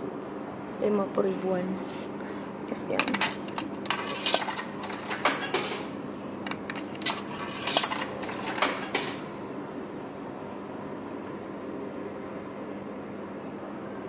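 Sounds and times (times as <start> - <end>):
coins clinking into vending machine: 3.0 - 9.3.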